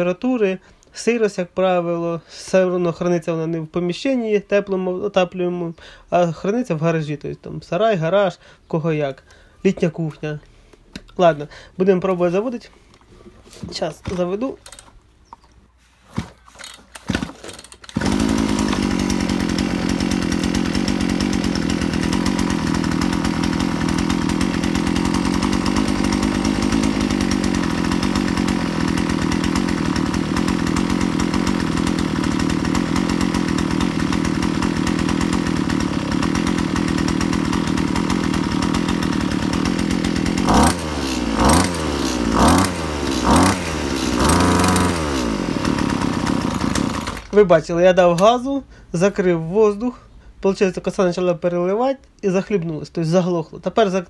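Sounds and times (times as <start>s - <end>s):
starter cord tugs: 12.1s - 47.5s
brush cutter engine running: 12.2s - 15.0s, 16.6s - 48.4s.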